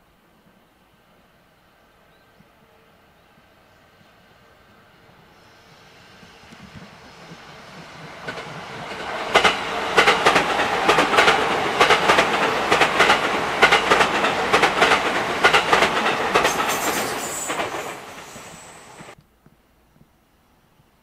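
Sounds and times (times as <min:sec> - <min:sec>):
train wheels clicking over rail joints: 0:06.2 - 0:19.2.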